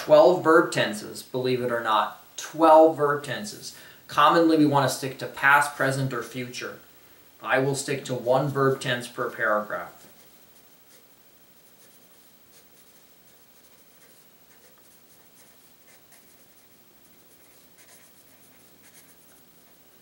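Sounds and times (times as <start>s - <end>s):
pencil scratching on paper: 9.8s - 20.0s.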